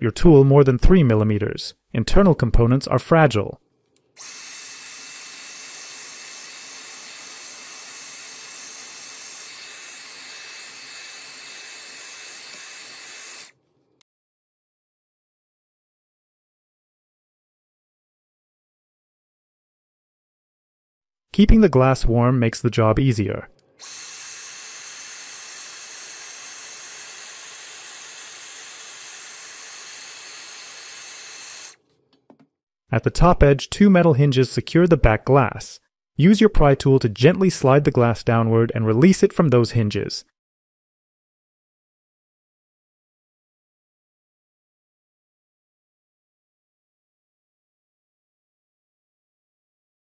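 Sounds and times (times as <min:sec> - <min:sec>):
hair dryer blowing: 0:04.2 - 0:13.5, 0:23.8 - 0:31.8.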